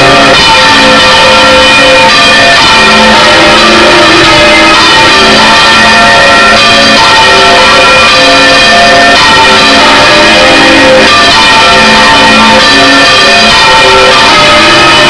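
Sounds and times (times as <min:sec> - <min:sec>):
church bells pealing: 0:00.0 - 0:15.0.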